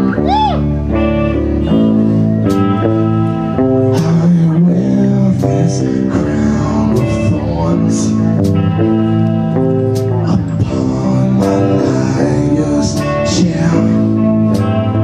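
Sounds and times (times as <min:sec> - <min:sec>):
electric guitar chords: 0:00.0 - 0:15.0
man singing: 0:03.6 - 0:15.0.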